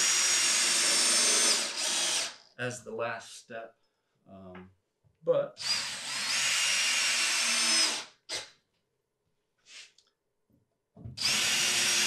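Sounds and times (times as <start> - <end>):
cordless drill motor whine: 5.6 - 8.0, 11.2 - 12.0.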